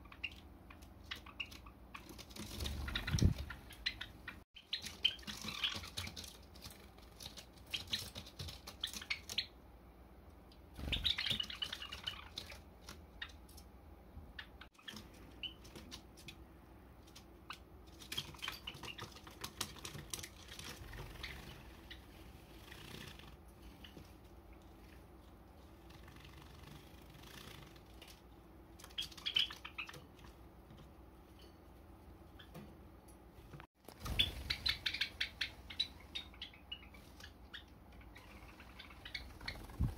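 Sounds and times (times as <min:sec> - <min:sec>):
sparrows chirping: 0:00.0 - 0:07.0, 0:07.6 - 0:09.6, 0:10.8 - 0:13.6, 0:14.3 - 0:16.0, 0:17.4 - 0:25.0, 0:28.8 - 0:30.2, 0:33.9 - 0:39.9
faint room noise: 0:00.0 - 0:39.9.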